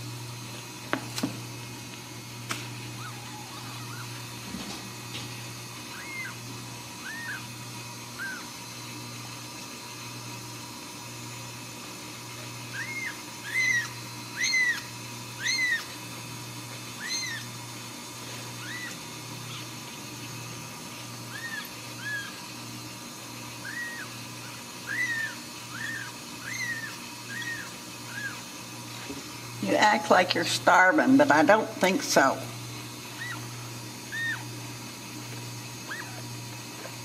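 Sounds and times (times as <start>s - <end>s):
kitten mewing: 2.9s - 4.2s, 5.9s - 6.4s, 7.0s - 7.5s, 8.2s - 8.5s, 12.7s - 15.9s, 17.0s - 17.5s, 18.6s - 19.7s, 21.3s - 22.4s, 23.6s - 28.4s, 33.2s - 33.5s, 34.1s - 34.5s, 35.8s - 36.3s.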